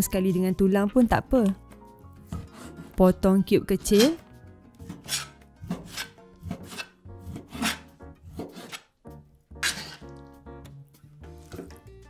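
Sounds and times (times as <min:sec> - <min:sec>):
knife slicing on cutting board: 0:02.3 - 0:03.0, 0:04.8 - 0:08.9, 0:09.6 - 0:10.2.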